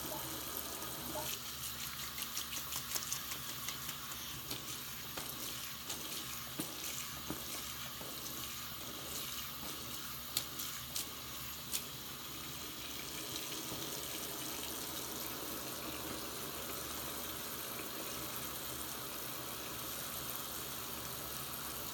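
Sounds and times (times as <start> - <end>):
tap water running into sink: 0.0 - 21.9
hand stirring through foam: 0.9 - 12.2.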